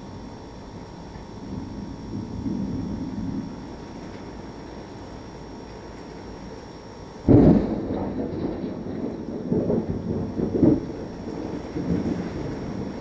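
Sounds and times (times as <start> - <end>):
steady rain: 0.0 - 13.0
thunder clap and rumbles: 1.4 - 3.6, 7.3 - 13.0.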